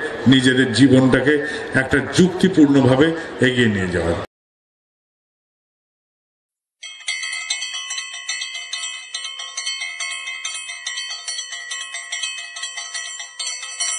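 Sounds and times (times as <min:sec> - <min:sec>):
bright bell-like chiming: 0:06.8 - 0:13.9.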